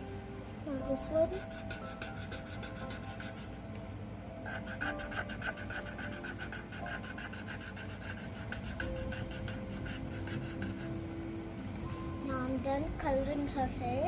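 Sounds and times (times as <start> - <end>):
pencil scratching on paper: 1.4 - 3.6, 4.4 - 11.0.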